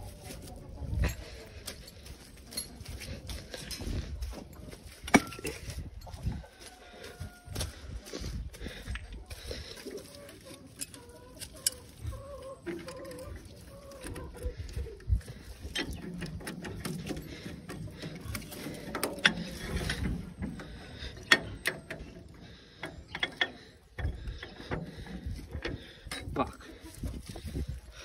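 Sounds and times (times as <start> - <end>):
chickens clucking: 0.0 - 28.0.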